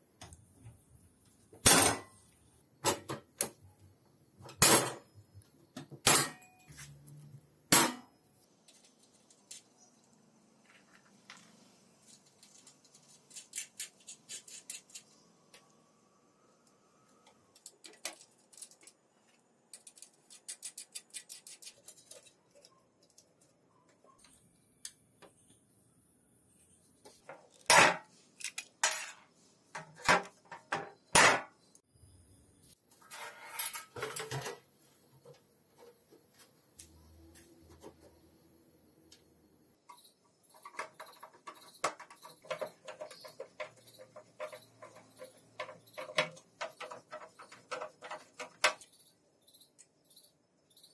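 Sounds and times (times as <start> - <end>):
metal parts clinking: 39.9 - 50.9.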